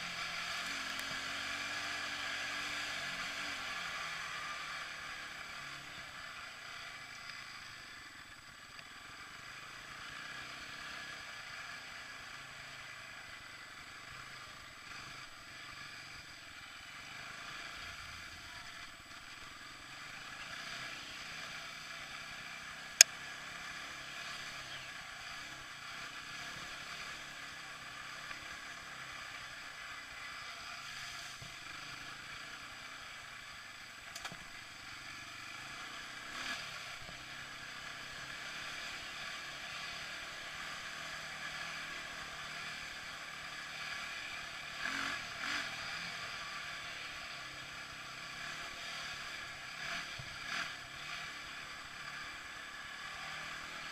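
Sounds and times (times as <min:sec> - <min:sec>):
atv engine running: 0:00.0 - 0:53.9
sharp click: 0:34.1 - 0:34.4.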